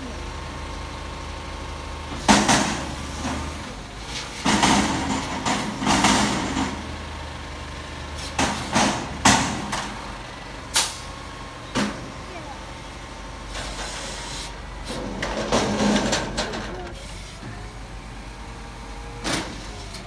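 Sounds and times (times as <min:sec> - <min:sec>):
garbage truck engine running: 0:00.0 - 0:20.0
metal dumpster banging: 0:04.2 - 0:07.2, 0:08.3 - 0:10.2, 0:14.9 - 0:17.1.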